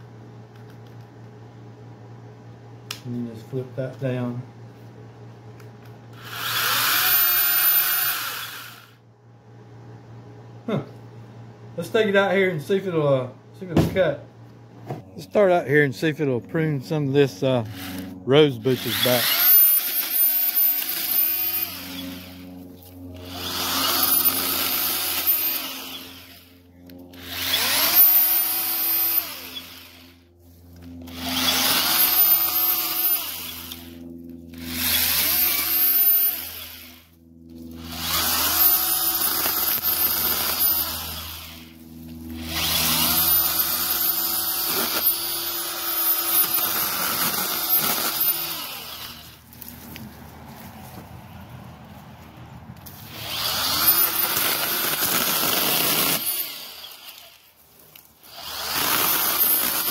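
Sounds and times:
battery chainsaw whining: 6.1 - 9.0, 15.2 - 50.0, 52.8 - 59.9.

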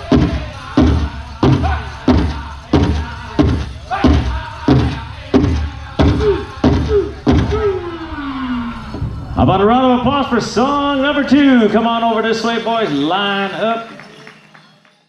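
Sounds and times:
large hand drum beating: 0.0 - 7.7
men singing: 0.0 - 8.9.

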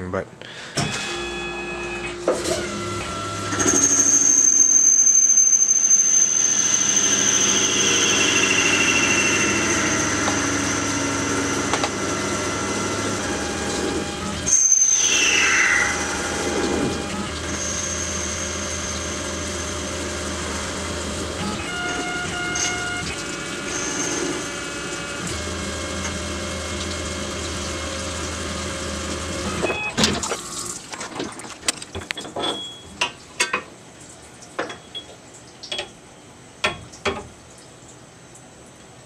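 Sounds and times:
lathe spindle hum and whine: 2.2 - 29.6.

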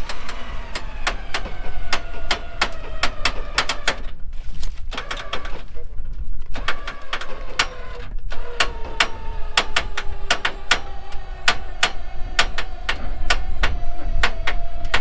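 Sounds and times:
lifting gear clicking: 0.0 - 4.2, 4.8 - 15.0
engine low rumble: 0.0 - 15.0.

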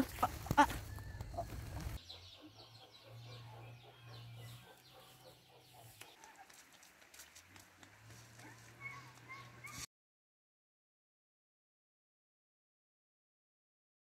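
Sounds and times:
chickens clucking: 0.0 - 4.7.

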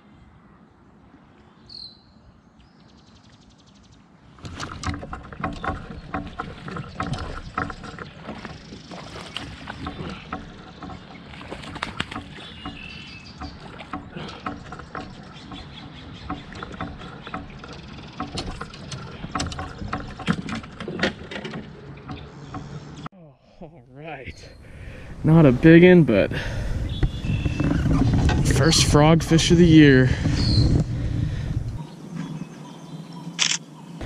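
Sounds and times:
fish splashing and thrashing: 4.4 - 23.1.

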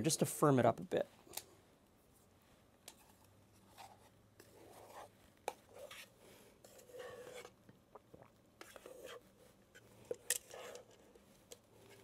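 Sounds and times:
spatula scraping metal bowl: 3.7 - 7.6, 10.0 - 11.0.

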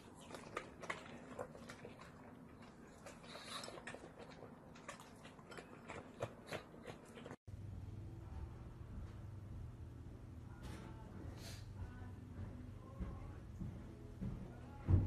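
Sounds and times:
dogs chewing food: 0.0 - 7.4
low steady hum: 7.5 - 15.0.

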